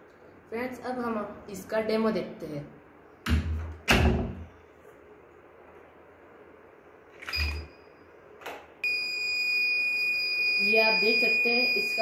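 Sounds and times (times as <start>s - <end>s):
high-pitched alarm buzzer: 8.8s - 12.0s.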